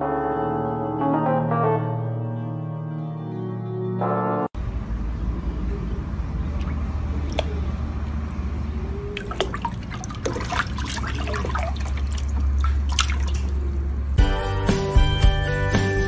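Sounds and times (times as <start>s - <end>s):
water splashing in plastic tub: 6.6s - 7.7s, 9.2s - 13.6s.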